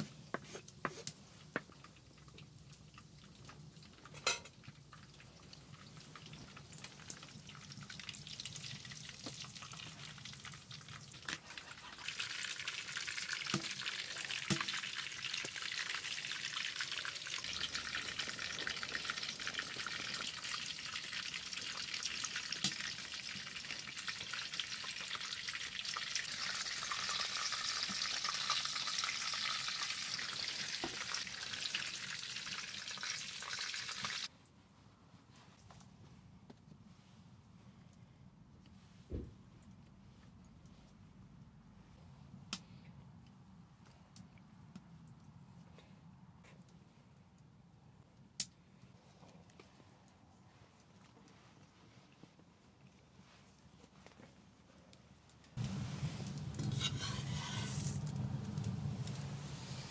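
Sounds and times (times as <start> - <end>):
food sizzling in pan: 11.5 - 34.3, 55.6 - 59.9.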